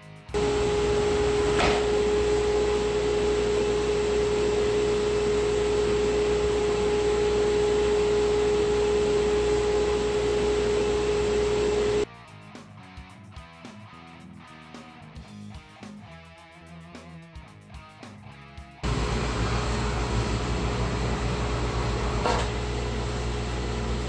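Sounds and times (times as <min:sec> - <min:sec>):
dust collector whining: 0:00.4 - 0:12.1, 0:18.8 - 0:24.0.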